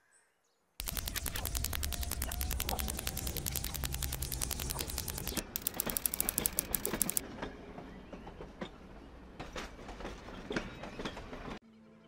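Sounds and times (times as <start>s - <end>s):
fast mechanical clicks: 0.8s - 7.2s
train rumbling on rails: 6.6s - 11.6s.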